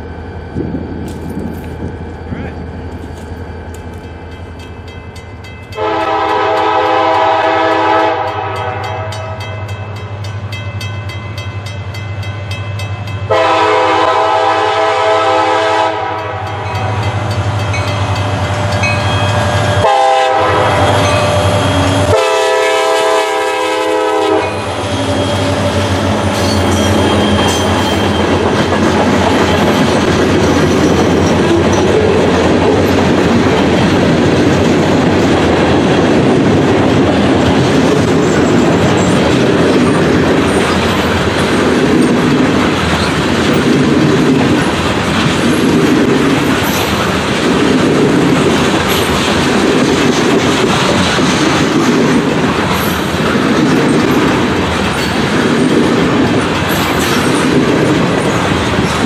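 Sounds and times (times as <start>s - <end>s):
train cars rolling past: 0.0s - 59.0s
train rumbling: 0.0s - 59.0s
locomotive air horn blasts: 5.8s - 9.4s, 13.3s - 16.6s, 19.5s - 24.8s.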